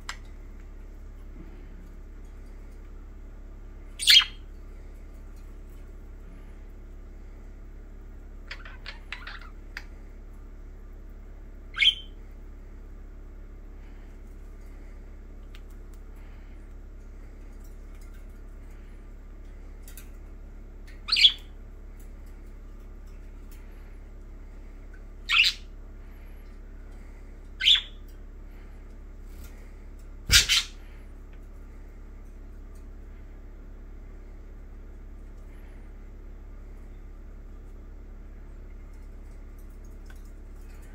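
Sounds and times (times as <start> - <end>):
budgerigars chirping: 4.0 - 4.4, 11.8 - 12.1, 21.1 - 21.4, 25.3 - 25.6, 27.6 - 28.0, 30.3 - 30.8.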